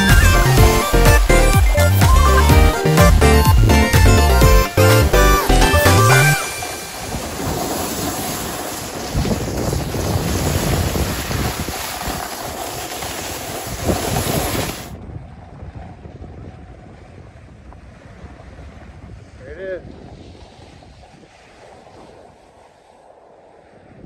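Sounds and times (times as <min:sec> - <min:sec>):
snowboard scraping over snow: 0:02.8 - 0:15.0, 0:16.8 - 0:24.0
wind rushing over microphone: 0:06.4 - 0:24.0.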